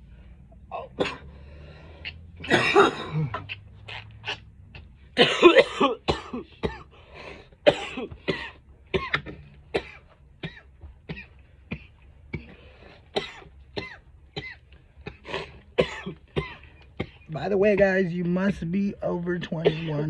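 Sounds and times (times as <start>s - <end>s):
man coughing: 0.8s - 1.3s, 2.4s - 3.6s, 5.2s - 6.9s, 7.6s - 18.1s, 19.3s - 20.0s.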